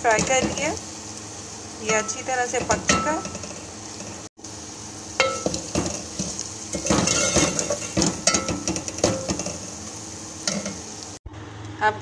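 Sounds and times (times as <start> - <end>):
meat sizzling in a pan: 0.0 - 11.2
spatula clinking on pan: 5.2 - 9.6
spatula scraping a pan: 5.4 - 9.6.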